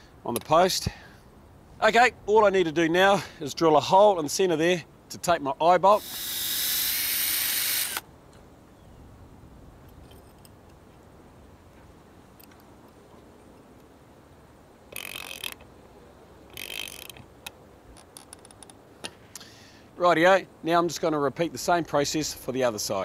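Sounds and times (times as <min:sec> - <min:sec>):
cordless drill boring timber: 0:06.0 - 0:08.0
ratchet wrench clicking: 0:06.0 - 0:08.0, 0:14.9 - 0:15.6, 0:16.5 - 0:17.2.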